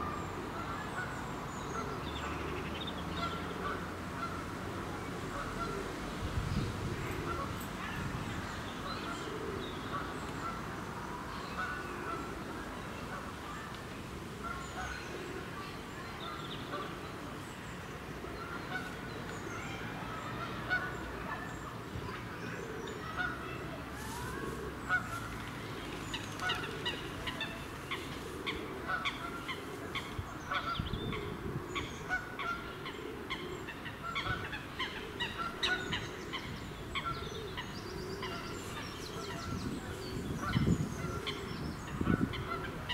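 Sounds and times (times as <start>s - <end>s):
geese honking: 26.5s - 31.2s.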